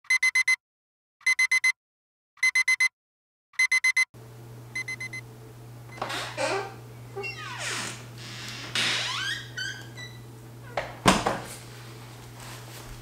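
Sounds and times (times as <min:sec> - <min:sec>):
alarm clock beeping: 0:01.2 - 0:01.7, 0:02.4 - 0:02.9, 0:03.6 - 0:04.1, 0:04.8 - 0:05.2
low room hum: 0:04.2 - 0:13.0.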